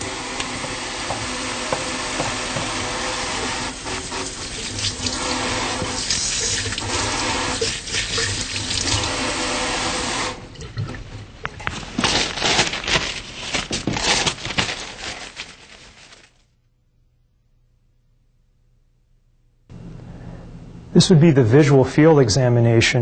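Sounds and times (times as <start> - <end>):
tap water running into a sink: 0.0 - 11.1.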